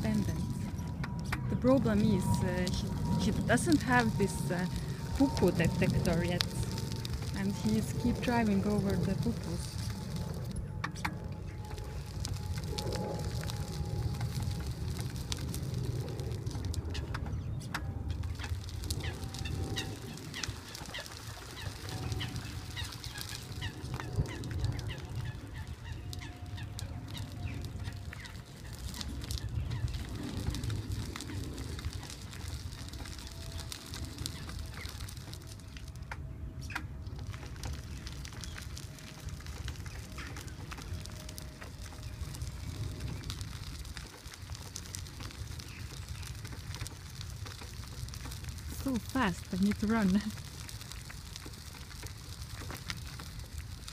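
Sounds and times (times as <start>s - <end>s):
wheelchair motor whine: 0.0s - 17.2s
low rumble: 0.0s - 53.9s
tyres crunching on gravel: 0.0s - 53.9s.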